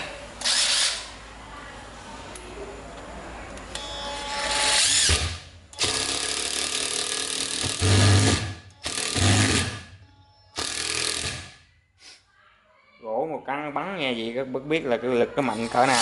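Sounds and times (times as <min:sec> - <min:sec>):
impact driver driving screw: 0:04.6 - 0:09.8, 0:10.6 - 0:11.6.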